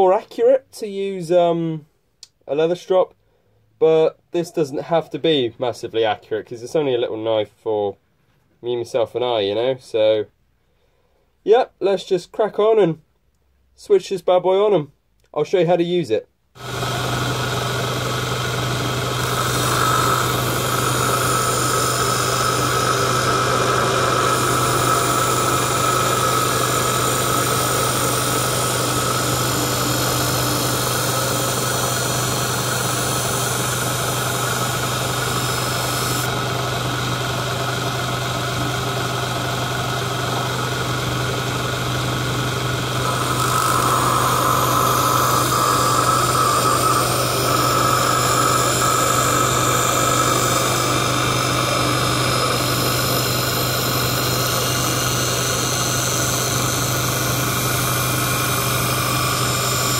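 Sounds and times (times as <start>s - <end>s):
bench grinder motor hum: 16.6s - 59.9s.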